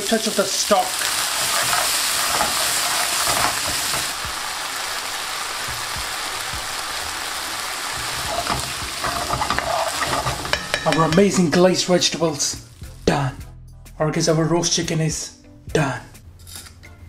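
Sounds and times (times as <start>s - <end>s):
stock sizzling in a wok: 0.0s - 13.0s
spoon stirring and scraping pan: 1.0s - 4.2s, 8.0s - 11.8s.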